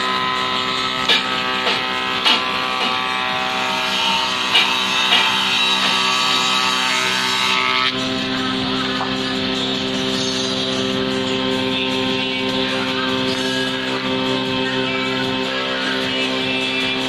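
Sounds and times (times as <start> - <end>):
planer machine humming: 0.0 - 17.0.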